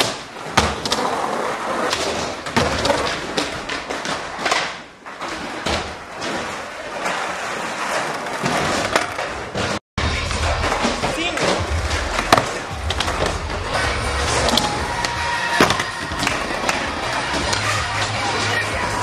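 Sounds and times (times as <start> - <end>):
skateboard clacks and thuds: 0.0 - 13.8
skateboard wheels rolling: 0.2 - 19.0.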